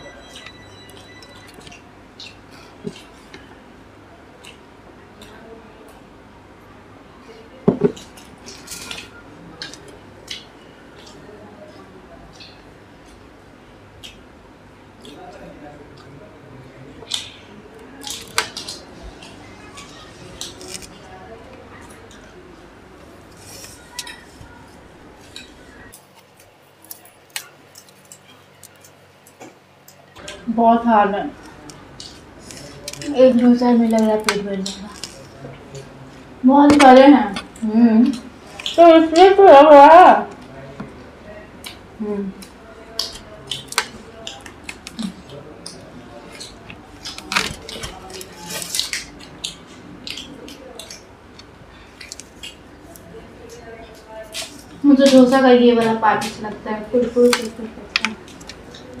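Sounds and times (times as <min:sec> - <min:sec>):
crunchy chewing: 0:17.0 - 0:22.4, 0:33.8 - 0:35.9, 0:42.4 - 0:55.2
crisp food tearing: 0:18.0 - 0:21.1, 0:33.8 - 0:35.4, 0:46.4 - 0:51.0.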